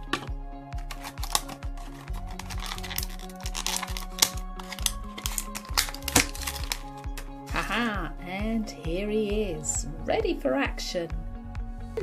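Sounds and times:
background music with bass line: 0.0 - 12.0
plastic packaging clicking and rustling: 0.1 - 7.3.

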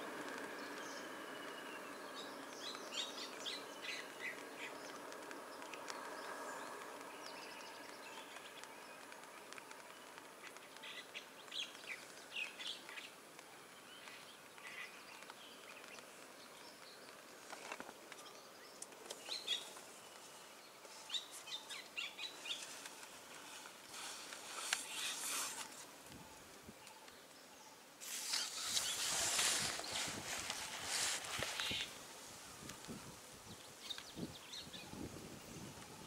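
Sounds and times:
birds chirping: 0.0 - 36.0
rustling: 14.0 - 26.2, 28.0 - 33.1.

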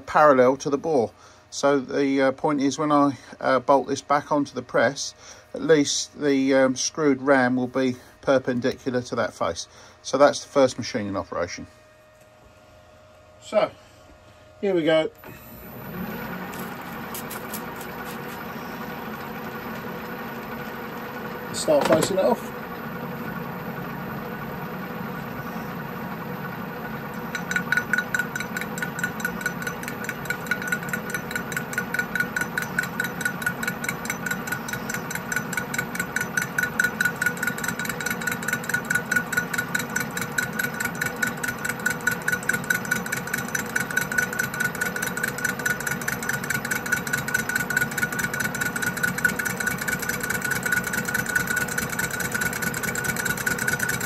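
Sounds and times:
lathe machine hum: 15.2 - 54.0
ringing tone of cutting tool on steel: 27.2 - 54.0.

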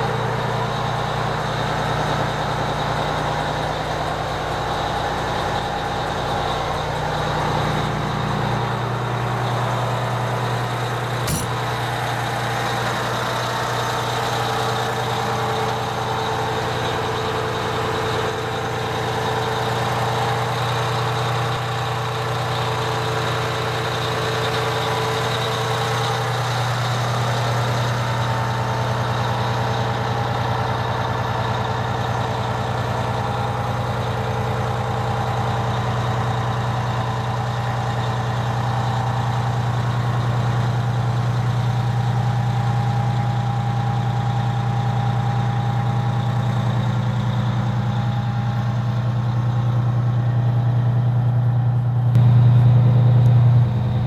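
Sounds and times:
diesel engine idling: 0.0 - 54.0
sharp click: 11.3 - 11.7.

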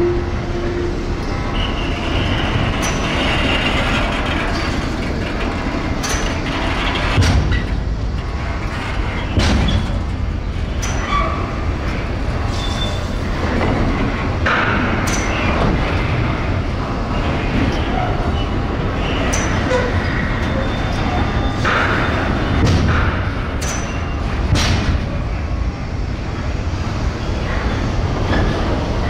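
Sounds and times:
steel wheels rumbling on track: 0.0 - 29.0.

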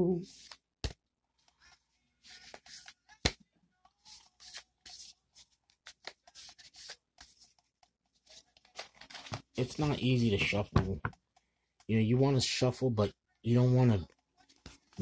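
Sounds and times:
cards shuffling: 2.2 - 3.4, 4.0 - 10.7.

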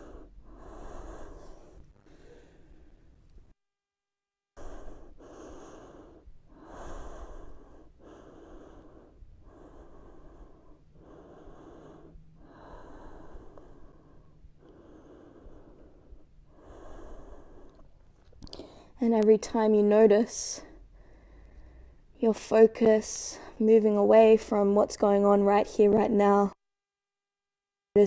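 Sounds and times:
woman breathing heavily: 0.0 - 3.3, 4.6 - 19.0, 20.6 - 22.2.

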